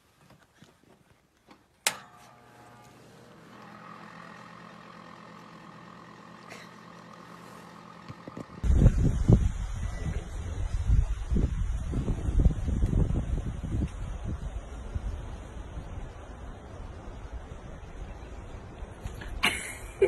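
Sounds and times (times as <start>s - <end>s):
heater switch click: 1.8s - 4.5s
heater humming: 1.8s - 10.3s
wind rumbling on microphone: 8.5s - 19.4s.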